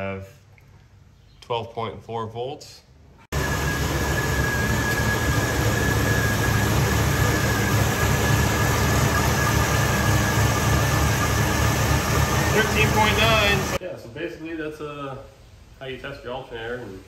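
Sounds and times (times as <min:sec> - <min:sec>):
high whine: 0:03.3 - 0:13.8
car engine idling: 0:03.4 - 0:13.8.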